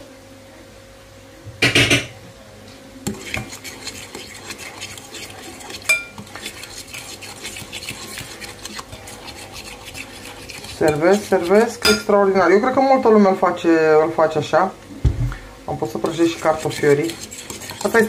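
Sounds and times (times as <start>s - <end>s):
fork beating against glass bowl: 3.1s - 12.1s.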